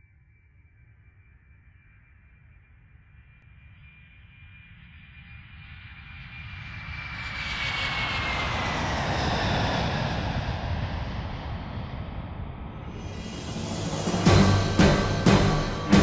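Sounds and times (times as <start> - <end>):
jet aircraft fly-by rush: 6.9 - 16.0.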